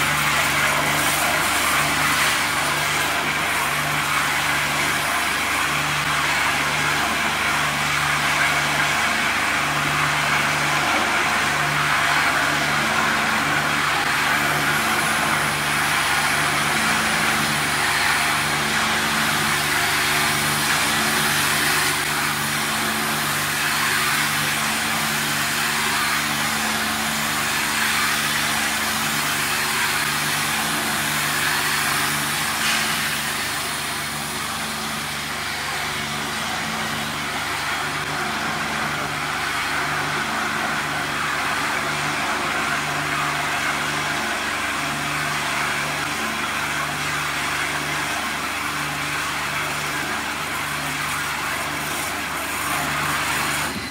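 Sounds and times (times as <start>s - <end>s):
water jets spraying: 0.0s - 6.3s.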